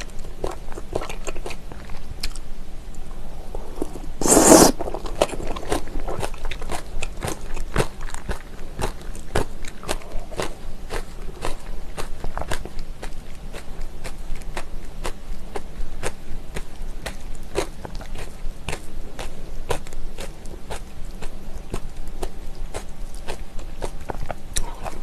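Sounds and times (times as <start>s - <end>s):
wet crunchy chewing: 3.5s - 15.2s, 16.0s - 25.0s
mouth clicks: 4.2s - 4.8s.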